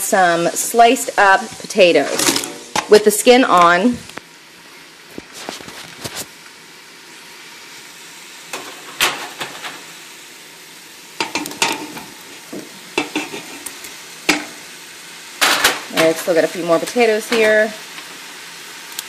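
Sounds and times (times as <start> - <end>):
steady sizzle in a pot: 0.0 - 19.0
potatoes dropping into a metal pot: 2.1 - 3.0.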